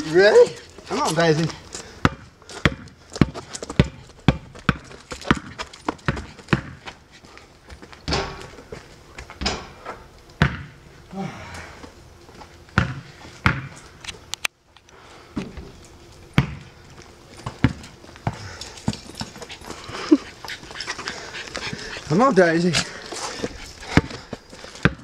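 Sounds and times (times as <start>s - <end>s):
basketball bouncing on court: 2.0s - 6.8s, 10.4s - 10.7s, 12.8s - 13.7s, 16.4s - 16.7s, 17.4s - 19.4s.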